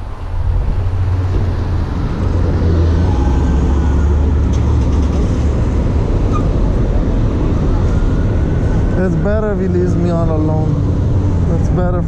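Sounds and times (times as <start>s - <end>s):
motor vehicle rumbling: 0.0s - 12.0s.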